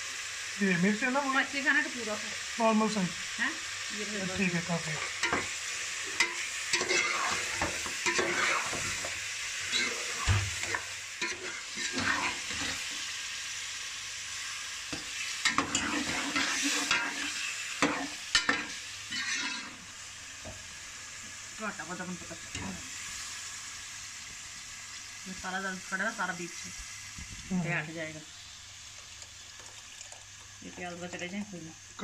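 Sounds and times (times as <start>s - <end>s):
meat sizzling in a pot: 0.0s - 32.0s
metal spoon scraping a pot: 6.2s - 9.1s, 9.7s - 12.8s, 15.5s - 19.8s.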